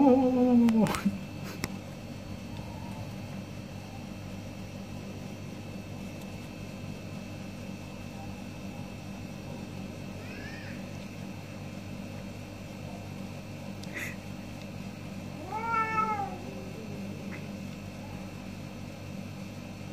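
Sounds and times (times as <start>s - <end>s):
low machine hum: 0.0s - 19.9s
cat meow: 10.2s - 10.8s, 15.4s - 16.6s.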